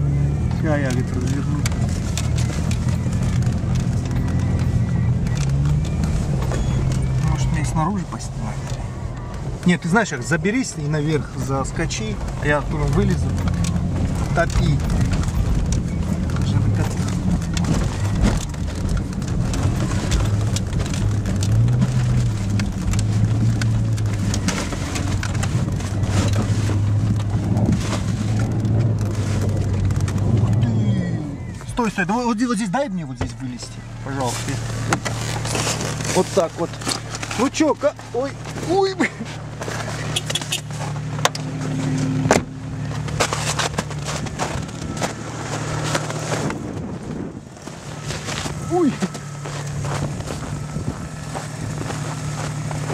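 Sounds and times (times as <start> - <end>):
car engine revving: 0.0 - 52.9
sharp clicks and knocks: 0.8 - 7.2, 12.0 - 30.6.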